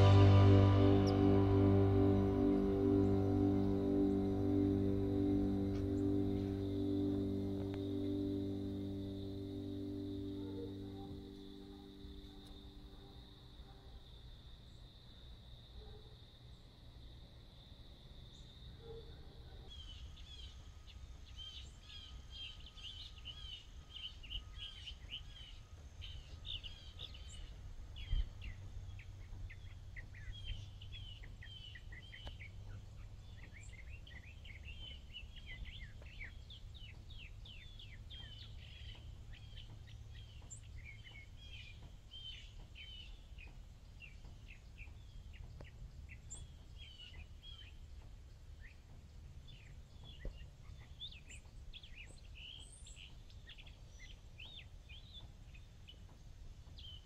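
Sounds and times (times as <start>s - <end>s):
low background rumble: 0.0s - 13.8s
birds chirping: 0.0s - 14.0s, 18.3s - 57.0s.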